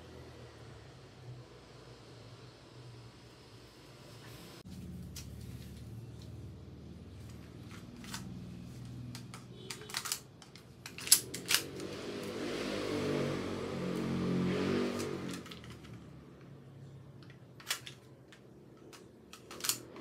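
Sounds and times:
low background hum: 0:00.0 - 0:11.9
pistol magazine clicks: 0:18.9 - 0:19.8.

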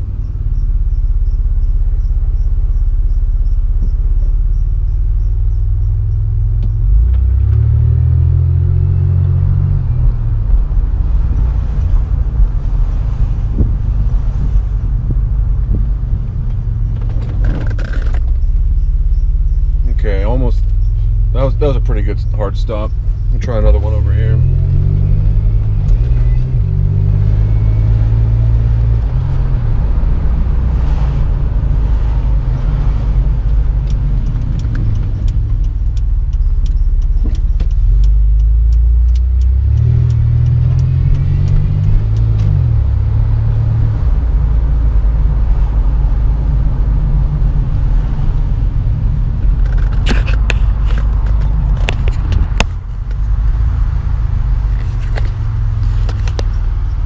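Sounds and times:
car engine and road noise: 0:00.0 - 0:57.0
sharp clicks: 0:33.4 - 0:42.6.

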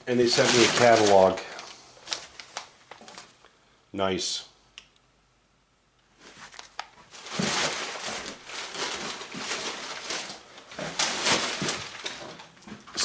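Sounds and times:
plastic bag and paper crinkling: 0:00.0 - 0:03.4, 0:06.2 - 0:13.0.

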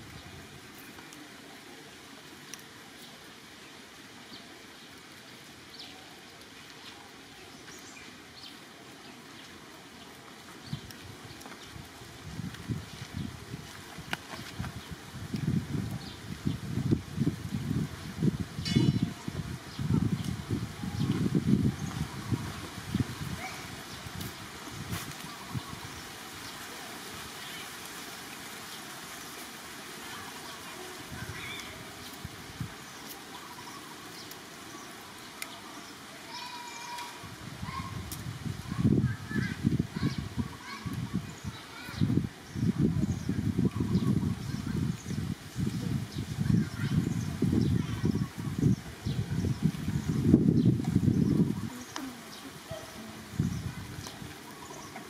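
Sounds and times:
outdoor background noise: 0:00.0 - 0:55.0
steady background hiss: 0:00.0 - 0:55.0.

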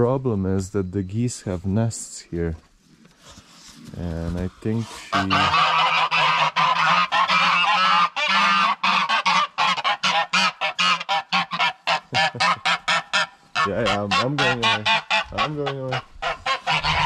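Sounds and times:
geese honking: 0:04.8 - 0:17.0.

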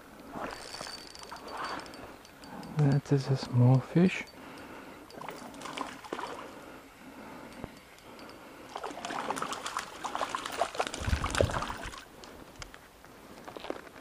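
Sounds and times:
water splashing and sloshing: 0:00.2 - 0:02.0, 0:05.1 - 0:06.7, 0:08.4 - 0:12.4
stream water trickling: 0:00.2 - 0:06.7, 0:07.6 - 0:12.4.

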